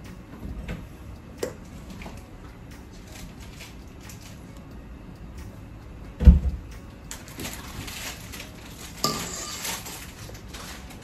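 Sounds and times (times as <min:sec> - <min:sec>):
piping bag rustling: 0:07.1 - 0:11.0
spatula scraping metal bowl: 0:09.0 - 0:09.9.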